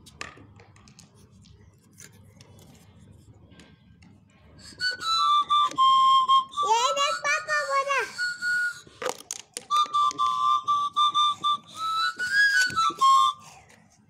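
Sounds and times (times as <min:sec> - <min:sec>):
whistled tune: 0:04.6 - 0:13.6.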